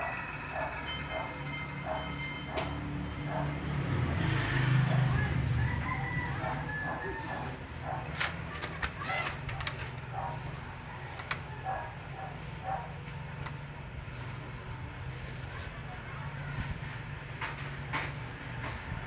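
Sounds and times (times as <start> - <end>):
rooster crowing: 4.5 - 8.0, 10.2 - 12.0.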